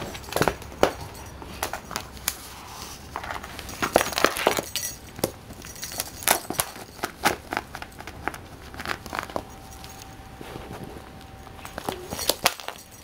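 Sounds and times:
cat collar bell jingling: 0.0 - 13.0
claws scraping on hardwood floor: 6.6 - 12.4.

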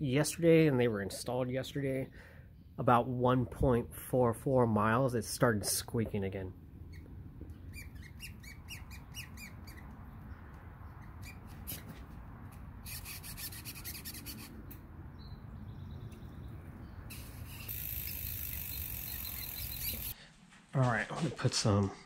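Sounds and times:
pedal squeaking: 6.9 - 10.1, 10.9 - 12.0, 17.1 - 20.2.

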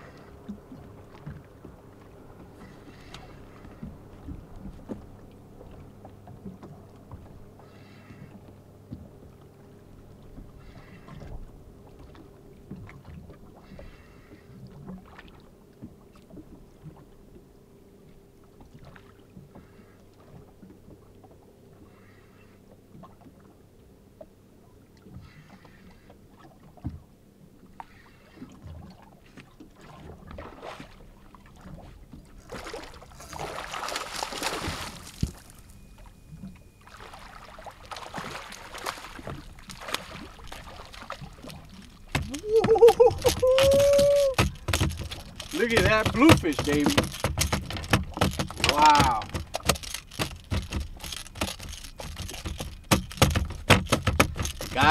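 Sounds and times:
water lapping against hull: 0.0 - 54.9
fish thrashing and splashing: 32.4 - 35.8, 36.8 - 54.9.

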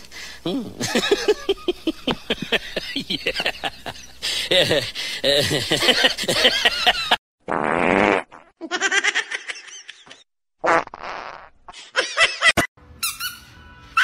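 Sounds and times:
buzzing fart sound: 7.5 - 8.6, 10.6 - 11.6
squeaky sounds: 12.9 - 14.0.

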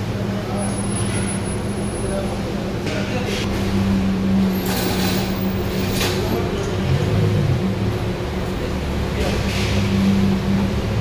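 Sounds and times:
sports car engine at low revs: 2.5 - 11.0.

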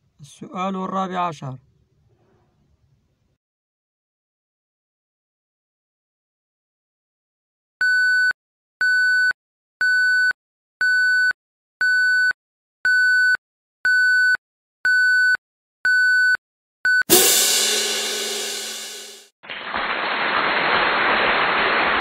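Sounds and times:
electronic timer beeps: 7.8 - 12.3, 12.9 - 17.1
cymbal crash: 17.1 - 19.3.

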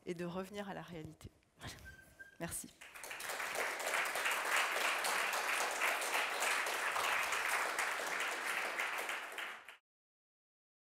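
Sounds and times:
audience applauding: 2.8 - 9.8.

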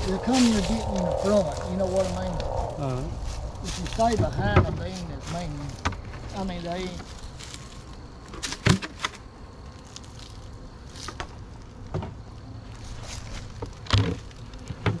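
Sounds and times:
bees buzzing: 0.0 - 8.3
knocks and clatters of hive handling: 5.7 - 9.2, 10.0 - 12.2, 13.0 - 15.0.

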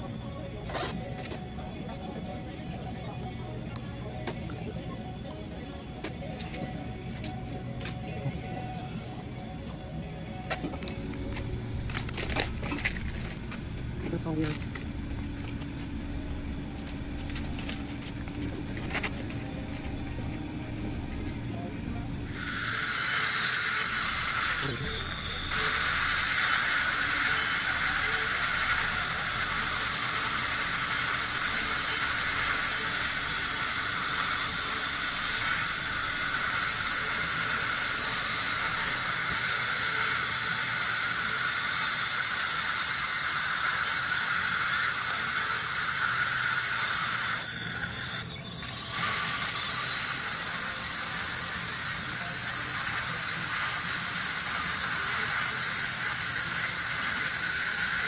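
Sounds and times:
dental drill whining: 22.2 - 58.0.

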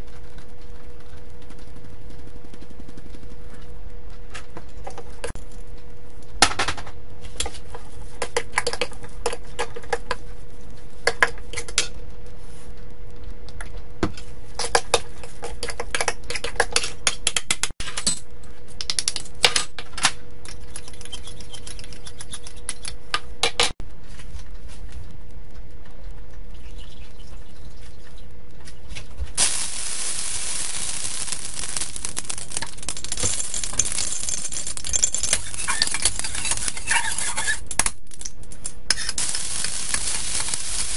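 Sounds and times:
hot wok hissing: 29.4 - 37.0, 39.2 - 40.9
fork scraping a metal bowl: 33.5 - 37.7.

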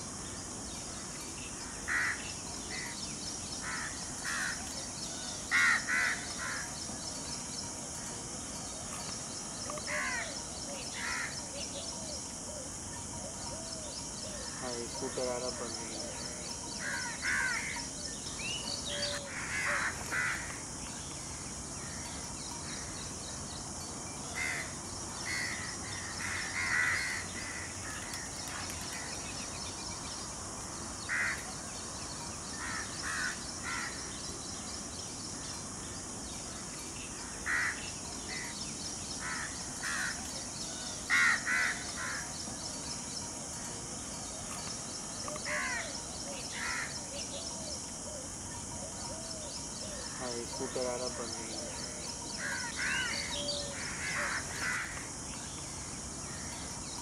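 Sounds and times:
steady high-pitched hiss: 0.0 - 57.0
harsh caw-like animal calls: 1.9 - 2.2, 5.5 - 6.7, 19.0 - 20.6, 24.4 - 28.0, 37.4 - 38.5, 41.1 - 42.3, 52.4 - 55.1.

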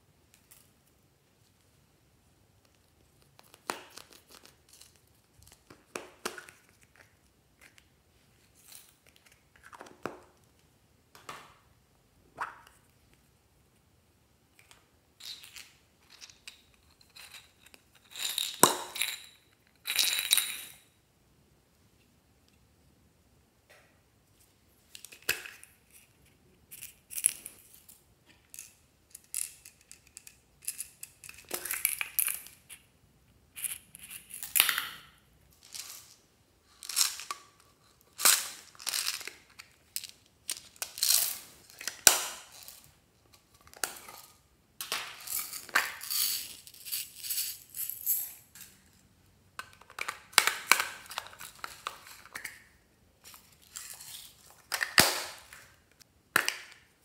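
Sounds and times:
beads rattling in plastic pots: 15.2 - 20.8, 33.6 - 42.9, 43.7 - 49.0.

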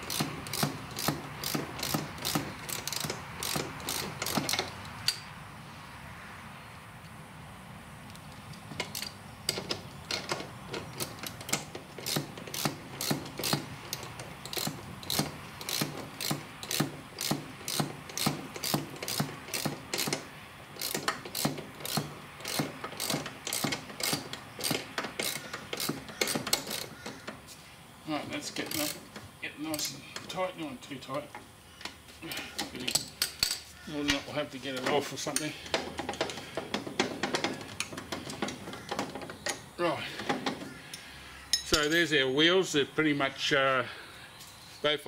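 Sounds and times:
socket ratchet clicking: 0.0 - 5.3, 8.8 - 27.4, 28.6 - 29.2.

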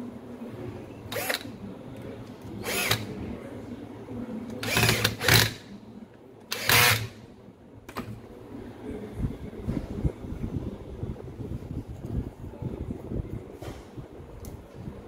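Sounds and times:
screwdriver motor whining: 1.1 - 1.5, 2.6 - 3.1, 4.6 - 5.6, 6.5 - 7.2.

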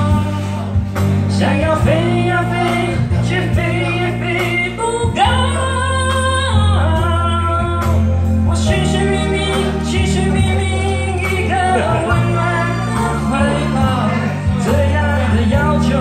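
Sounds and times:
man singing pop song: 0.0 - 16.0
musical accompaniment: 0.0 - 16.0.

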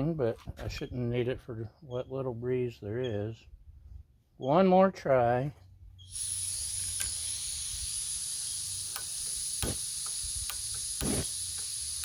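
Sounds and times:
gas hissing from stove burner: 6.1 - 12.0
sharp clicks: 8.5 - 12.0.

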